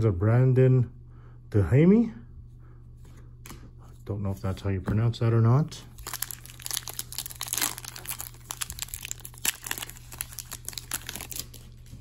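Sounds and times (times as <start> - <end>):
foil wrapper crinkling and tearing: 5.9 - 12.0.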